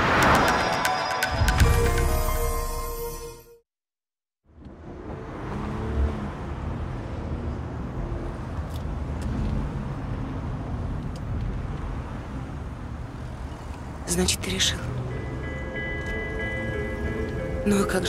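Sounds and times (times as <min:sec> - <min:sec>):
car and road traffic rumble: 0:04.4 - 0:18.0.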